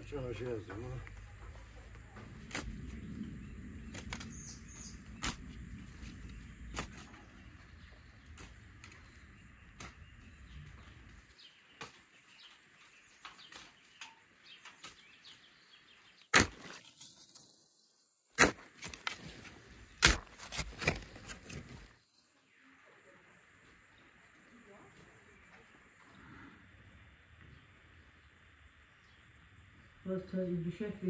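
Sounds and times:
hoe chopping into soil: 2.4 - 3.0, 5.2 - 5.5, 6.7 - 7.2, 16.3 - 17.1, 18.4 - 21.9.

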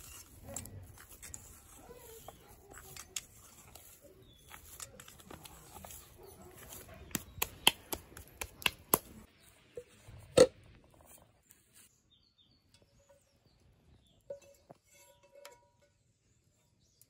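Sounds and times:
hands kneading dough in metal pot: 0.0 - 11.9.

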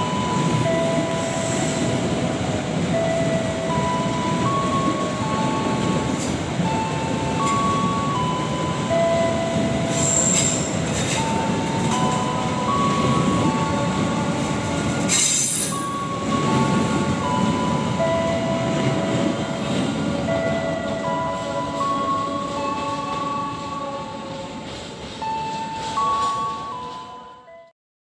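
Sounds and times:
train coaches rolling past: 0.0 - 27.7
train wheel squeal: 9.6 - 13.7, 14.8 - 17.7.

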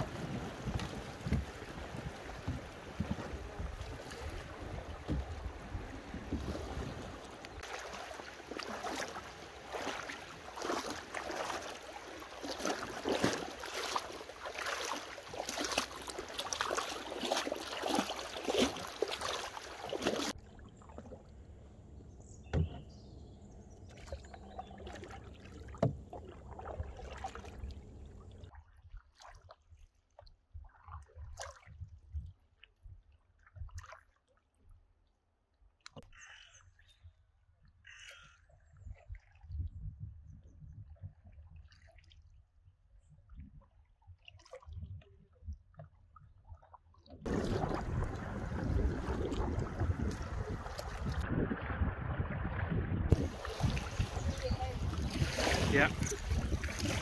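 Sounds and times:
river water splashing and rushing: 0.0 - 21.2, 23.9 - 28.5, 47.2 - 57.0
paddle strokes in water: 0.0 - 21.4, 23.8 - 32.2, 45.7 - 57.0
faint water drips: 6.3 - 21.4.

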